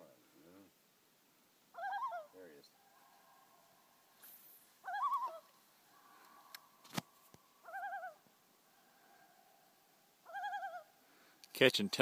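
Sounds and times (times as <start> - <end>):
loons tremolo calls: 1.8 - 6.8, 7.5 - 11.0.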